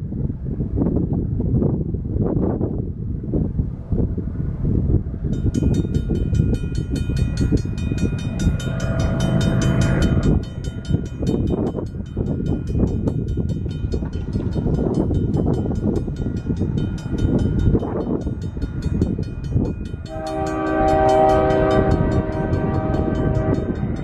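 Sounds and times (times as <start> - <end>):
freight train wheels rumbling: 0.1 - 24.0
locomotive horn: 20.1 - 24.0.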